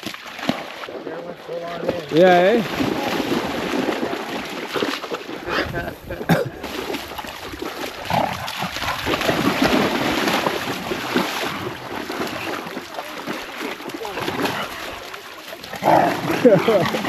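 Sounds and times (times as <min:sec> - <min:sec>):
dogs splashing through water: 0:00.0 - 0:17.0.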